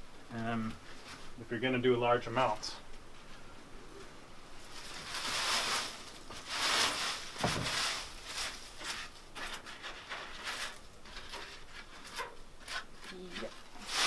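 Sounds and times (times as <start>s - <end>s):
dried leaves rustling and crackling: 4.5s - 14.0s
hands rustling dry leaves: 4.5s - 14.0s.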